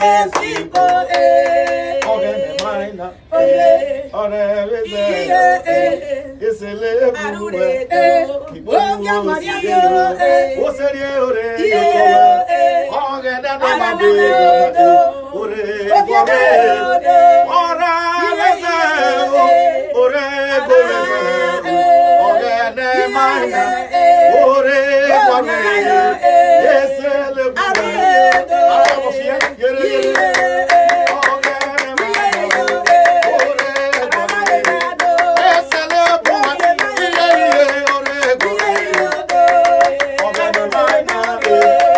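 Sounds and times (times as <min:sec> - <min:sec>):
hand clapping: 0:00.0 - 0:02.7, 0:27.7 - 0:41.9
people singing gospel: 0:00.0 - 0:41.9.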